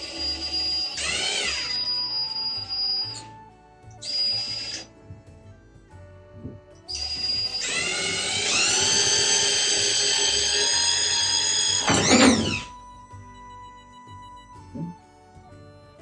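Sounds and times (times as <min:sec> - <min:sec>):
cordless drill motor whine: 0:00.0 - 0:04.9, 0:06.8 - 0:13.6.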